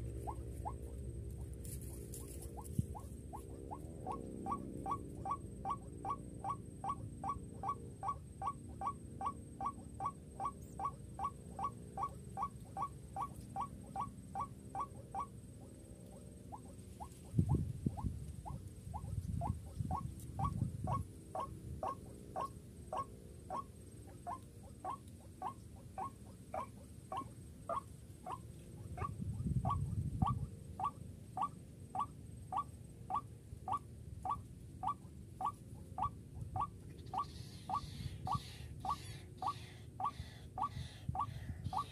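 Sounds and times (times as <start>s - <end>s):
low rumbling noise: 0.0s - 11.6s.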